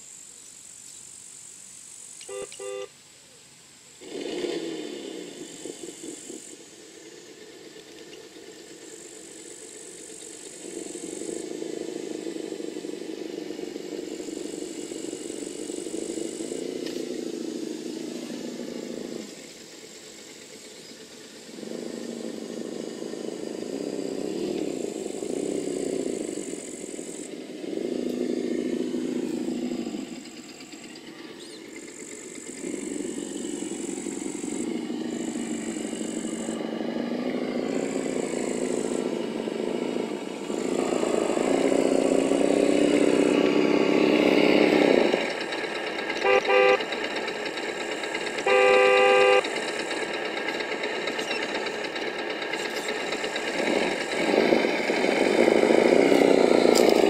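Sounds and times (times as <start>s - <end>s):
simulated engine revving: 4.0s - 57.0s
high whine: 46.2s - 46.9s, 48.4s - 49.6s.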